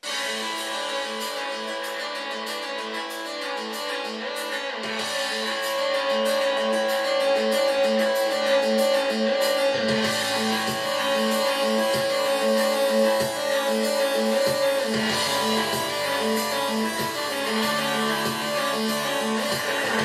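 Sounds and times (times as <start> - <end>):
guitar music over speakers: 0.0 - 20.0
bass line: 9.3 - 20.0.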